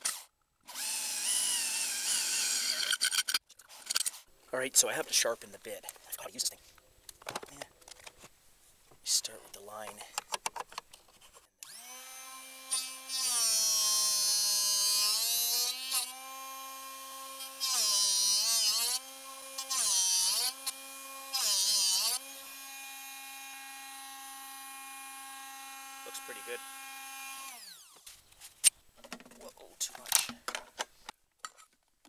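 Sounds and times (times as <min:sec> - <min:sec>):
high grinding of drill bit: 0:00.7 - 0:03.4, 0:11.6 - 0:28.0
sharpener motor humming: 0:11.6 - 0:28.0.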